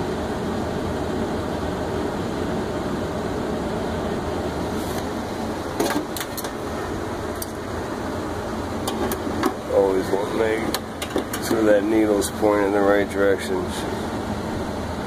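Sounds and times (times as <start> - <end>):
air handler blower running: 0.0 - 15.0.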